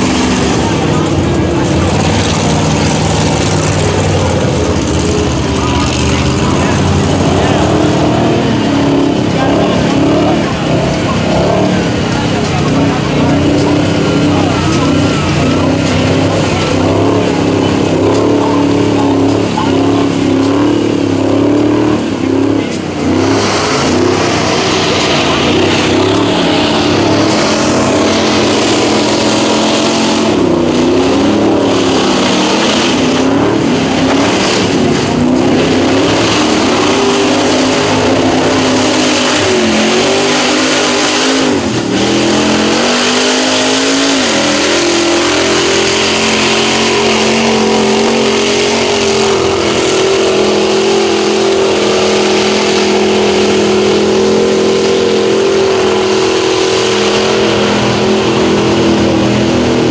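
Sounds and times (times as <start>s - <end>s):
truck engines revving: 0.0s - 59.9s.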